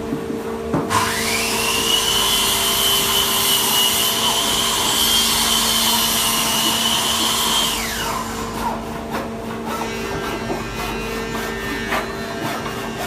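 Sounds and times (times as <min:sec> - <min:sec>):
power tool whining: 0:00.9 - 0:08.8.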